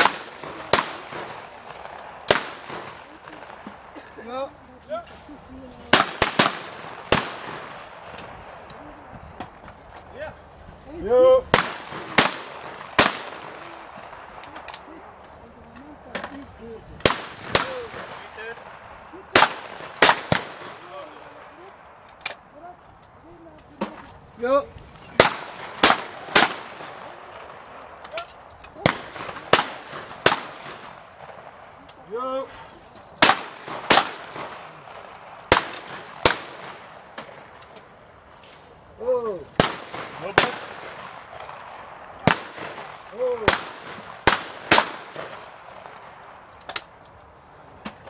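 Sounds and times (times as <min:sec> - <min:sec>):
shotgun shots: 0:00.0 - 0:04.0, 0:05.9 - 0:08.7, 0:11.5 - 0:14.8, 0:17.0 - 0:22.4, 0:25.2 - 0:28.0, 0:28.8 - 0:31.9, 0:33.2 - 0:37.6, 0:39.5 - 0:46.2
shotgun reports: 0:39.6 - 0:41.6.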